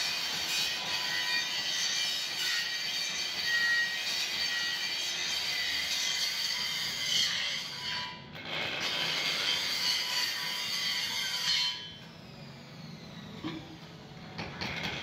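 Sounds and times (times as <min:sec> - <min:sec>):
angle grinder grinding metal: 0:00.0 - 0:06.0.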